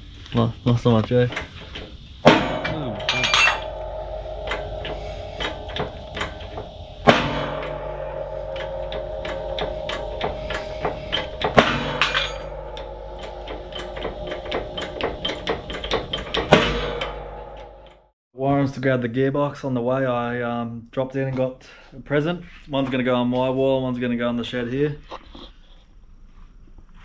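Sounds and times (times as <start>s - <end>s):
heavy metal clanks with ringing: 1.1s - 18.1s.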